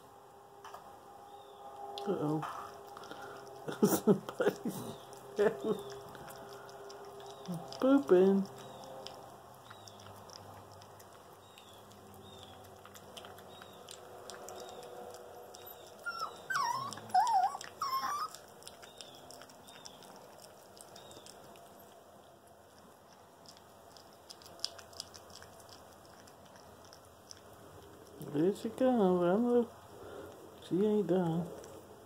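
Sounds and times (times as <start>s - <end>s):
puppy eating from tin can: 1.8s - 29.1s
puppy whining: 15.5s - 21.6s.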